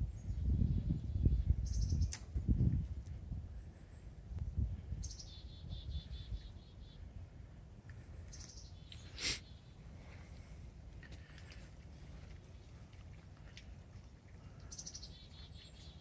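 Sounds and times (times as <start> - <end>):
steady low rumble: 0.0 - 8.8
songbird trilling: 1.2 - 2.2, 5.0 - 7.0, 8.2 - 9.8, 14.6 - 16.0.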